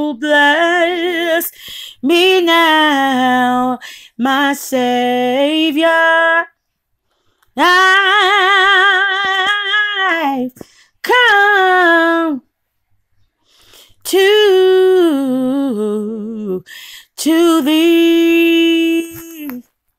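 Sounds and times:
woman singing unaccompanied: 0:00.0 - 0:06.6, 0:07.6 - 0:12.5, 0:13.9 - 0:19.7.

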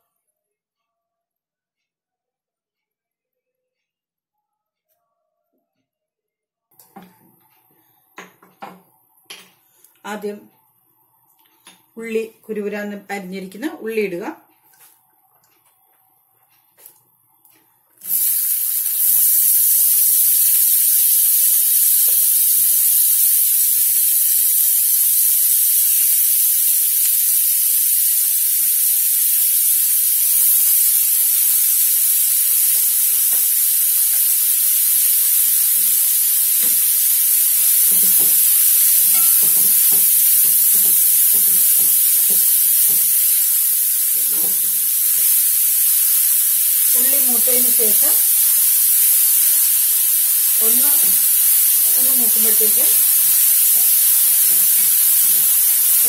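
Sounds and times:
onions sizzling in hot oil: 0:18.0 - 0:56.0.

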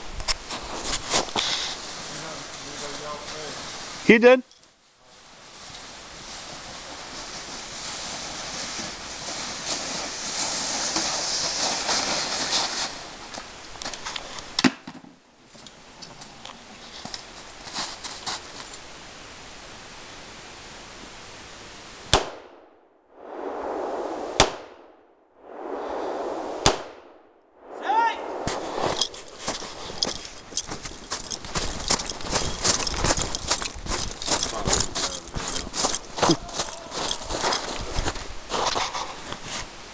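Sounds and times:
sled crunching through snow: 0:00.4 - 0:04.1, 0:05.2 - 0:14.1, 0:16.8 - 0:18.8, 0:27.8 - 0:39.9.

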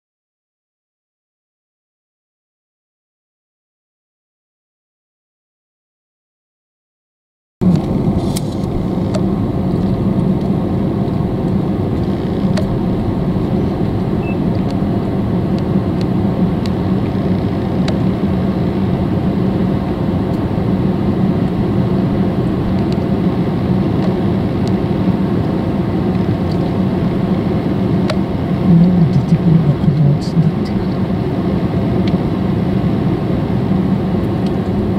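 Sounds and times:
car engine running: 0:07.6 - 0:34.9.

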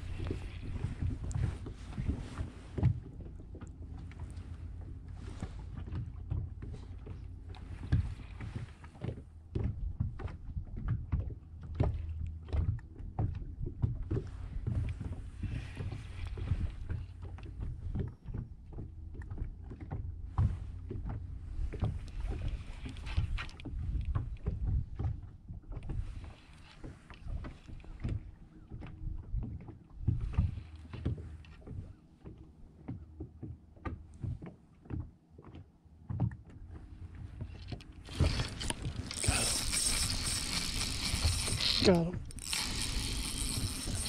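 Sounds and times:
water lapping against boat hull: 0:00.0 - 0:44.0.

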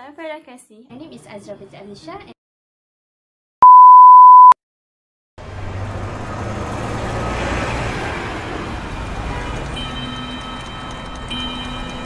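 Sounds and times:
city traffic hiss and rumble: 0:05.4 - 0:12.0.

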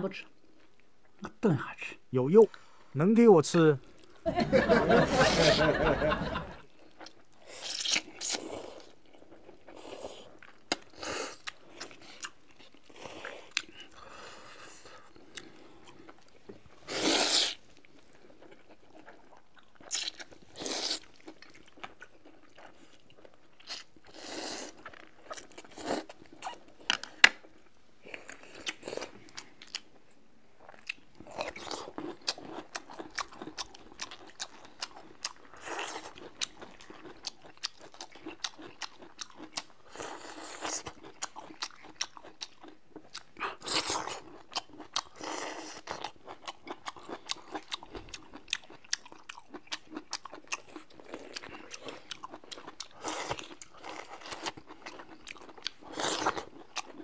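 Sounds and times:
wet chewing clicks: 0:06.8 - 0:14.0, 0:17.2 - 0:24.0, 0:30.6 - 0:57.0
noodles slurped: 0:16.8 - 0:17.8.

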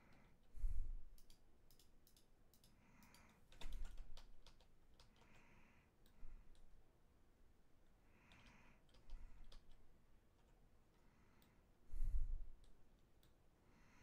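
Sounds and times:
keyboard and mouse clicks: 0:01.1 - 0:05.4, 0:08.2 - 0:10.6.

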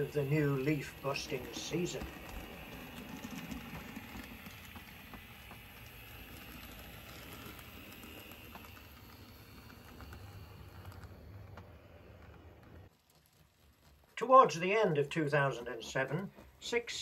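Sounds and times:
model train running: 0:00.0 - 0:12.9
wheels clicking over rail joints: 0:00.0 - 0:12.9.

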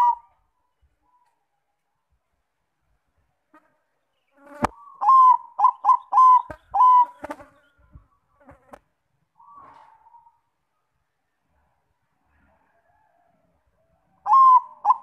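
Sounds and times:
dove cooing: 0:00.0 - 0:00.4, 0:04.6 - 0:07.4, 0:09.4 - 0:10.4, 0:14.2 - 0:15.0.

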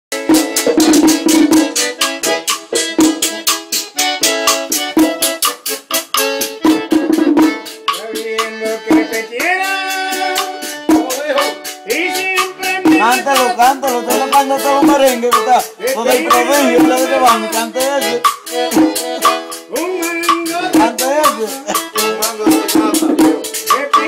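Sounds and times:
accordion melody: 0:00.1 - 0:24.0
drum beat: 0:00.1 - 0:24.0
metal scraper rhythm: 0:00.2 - 0:24.0
person singing: 0:07.6 - 0:24.0.

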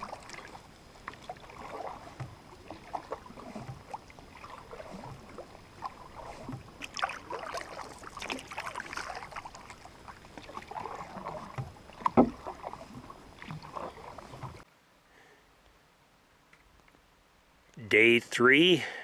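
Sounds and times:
paddle splashing water: 0:00.0 - 0:14.7.

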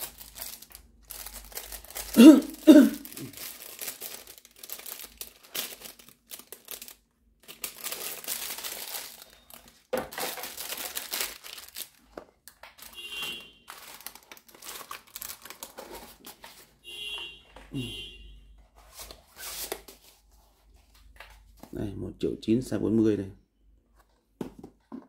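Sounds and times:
packaging crinkling and rustling: 0:00.0 - 0:16.8.

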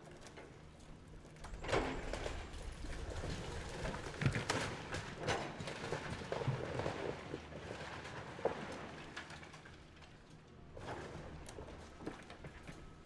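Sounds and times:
cracks clatters and thuds: 0:01.3 - 0:07.2.

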